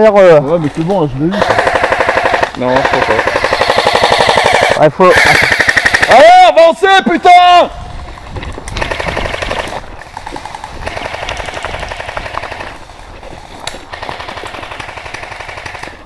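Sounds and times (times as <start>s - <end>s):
airsoft gun automatic fire: 1.4s - 6.1s, 8.8s - 9.7s, 13.9s - 16.0s.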